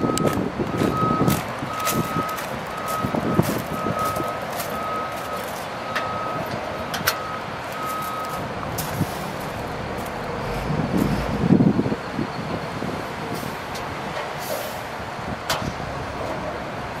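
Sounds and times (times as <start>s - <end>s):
vehicle back-up alarm beeping: 0.0s - 13.4s
engine rumble: 0.0s - 17.0s.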